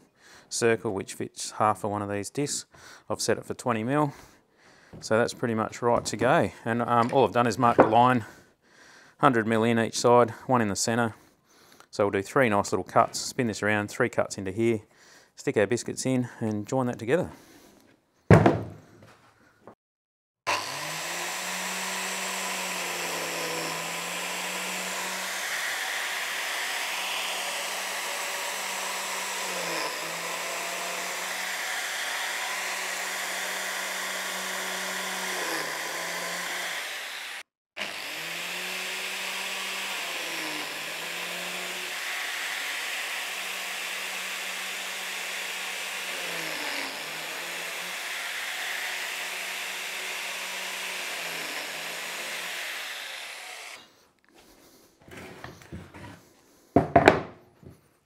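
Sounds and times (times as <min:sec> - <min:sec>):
biscuit joiner whining: 0:20.5 - 0:56.2.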